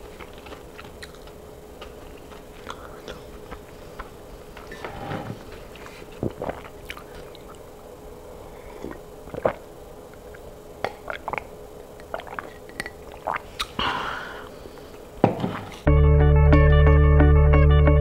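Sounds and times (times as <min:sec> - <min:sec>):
wet gulps and swallowing: 0:06.1 - 0:07.7, 0:08.6 - 0:13.8.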